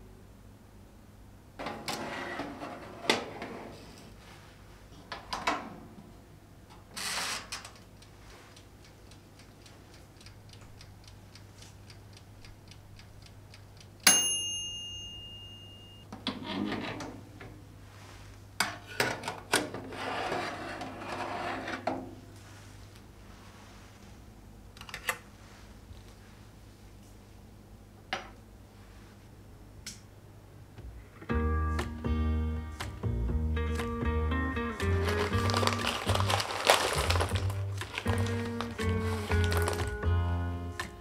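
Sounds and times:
baking tray sliding onto rack: 1.6s - 3.9s
metal tray scraping over rack: 1.6s - 3.9s, 19.8s - 22.0s
mechanical timer ticking: 7.8s - 16.0s
timer bell ding: 14.0s - 16.1s.

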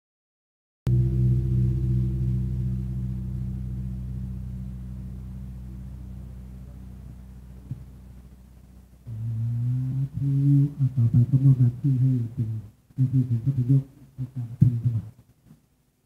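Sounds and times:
gong ringing: 0.9s - 8.6s.

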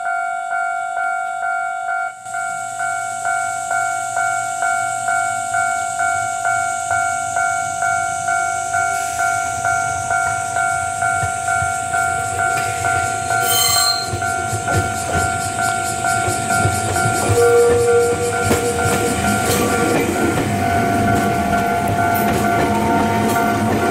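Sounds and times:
level crossing warning bell: 0.0s - 23.9s
electric train rumble: 1.8s - 23.9s
brief high squeal: 13.3s - 14.3s.

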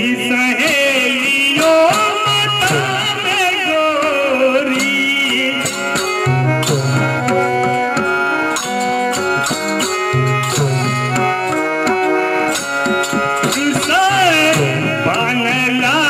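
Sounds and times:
man singing: 0.0s - 7.2s, 13.3s - 16.0s
harmonium: 0.0s - 16.0s
tabla drumming: 0.0s - 16.0s.

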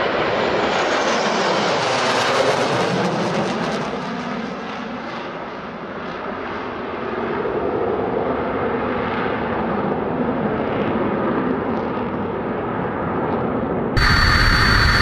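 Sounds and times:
jet engine roar: 14.0s - 15.0s.

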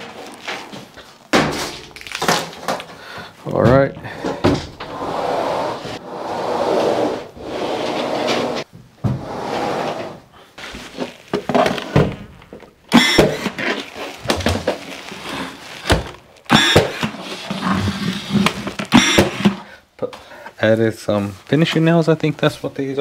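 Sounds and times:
nails hammered into wood: 16.5s - 17.1s.

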